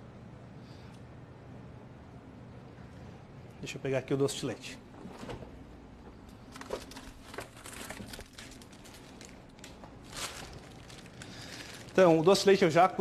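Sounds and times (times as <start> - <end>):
plastic bag rustling: 6.4 - 13.0.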